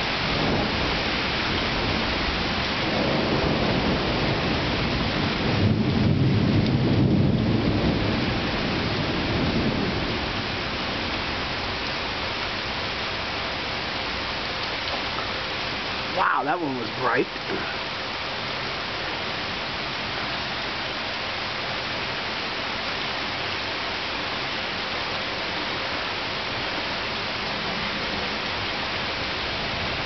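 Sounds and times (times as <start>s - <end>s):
rolling thunder: 0.0s - 11.8s
steady rain: 0.0s - 30.0s.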